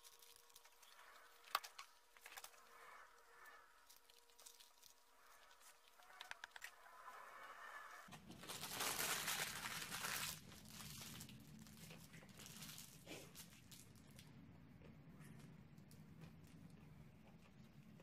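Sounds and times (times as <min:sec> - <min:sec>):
paper wrapper crinkling: 0:00.0 - 0:02.7, 0:03.8 - 0:06.8, 0:08.1 - 0:14.2
low steady hum: 0:00.0 - 0:18.0.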